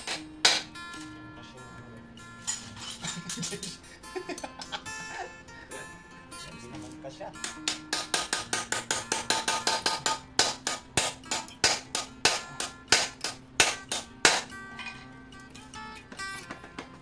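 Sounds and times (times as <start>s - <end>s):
hammer striking steel bar: 0.0s - 0.8s, 7.4s - 15.0s
background music: 0.0s - 17.0s.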